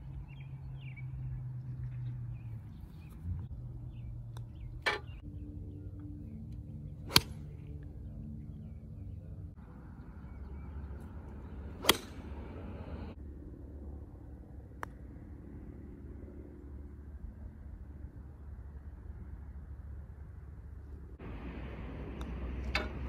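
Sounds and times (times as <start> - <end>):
golf club striking ball: 7.1 - 7.5, 11.4 - 12.6.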